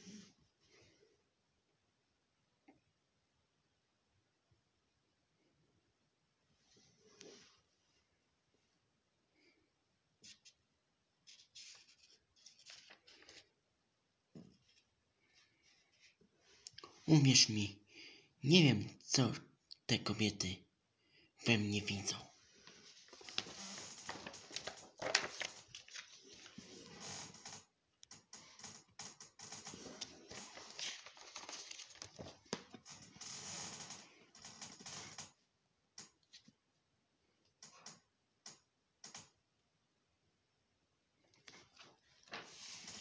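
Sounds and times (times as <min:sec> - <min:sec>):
paper page rustling and crinkling: 0:11.2 - 0:13.6, 0:22.6 - 0:27.7, 0:29.4 - 0:35.3, 0:41.5 - 0:43.0.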